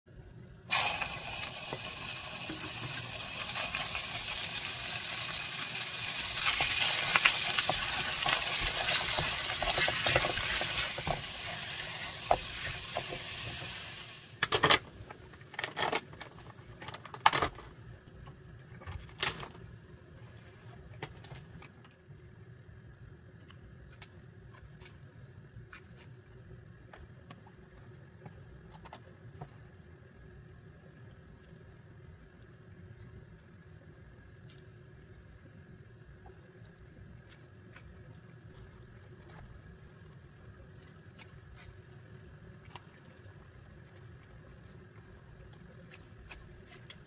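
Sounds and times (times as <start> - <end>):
meat sizzling in a pan: 0.7 - 14.4.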